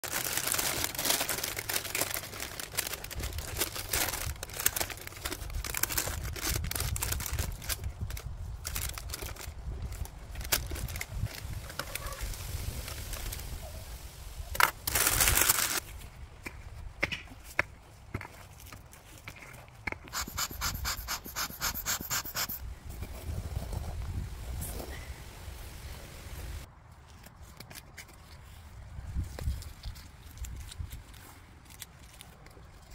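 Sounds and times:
paper crinkling and rustling: 0.0 - 13.6, 14.6 - 15.9.

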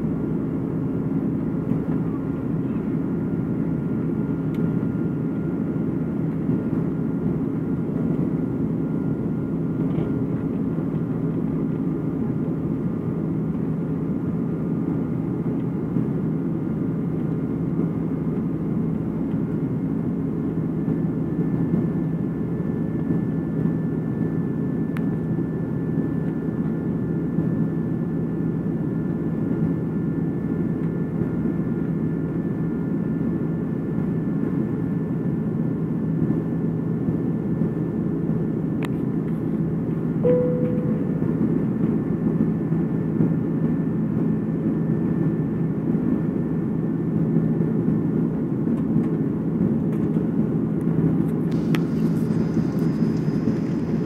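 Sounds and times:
jet engine and airflow drone: 0.0 - 54.0
faint whine tones: 1.4 - 13.4, 40.2 - 42.8, 51.2 - 54.0.

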